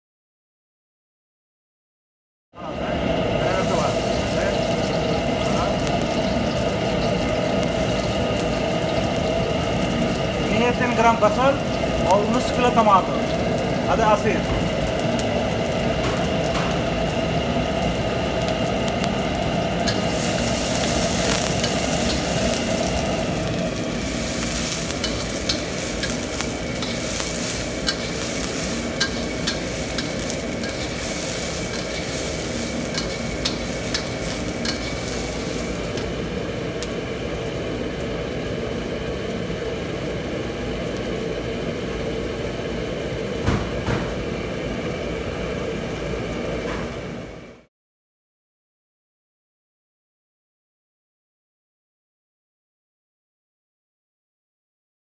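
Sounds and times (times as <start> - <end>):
gas burner drone: 2.6 - 47.7
onions sizzling in oil: 2.7 - 47.7
metal spatula scraping wok: 19.8 - 36.1.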